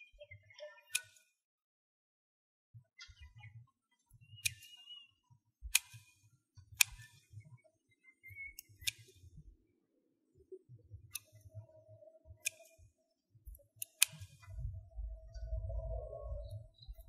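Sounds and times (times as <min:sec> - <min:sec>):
scissors snipping: 0:05.7 - 0:06.2, 0:06.8 - 0:07.1, 0:12.4 - 0:12.8, 0:13.8 - 0:14.5.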